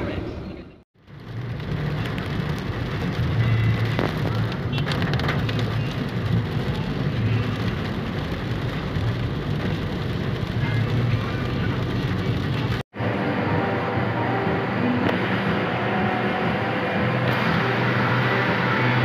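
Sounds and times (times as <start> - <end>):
low car rumble: 0.0 - 19.0
rain and tyres hissing: 1.0 - 19.0.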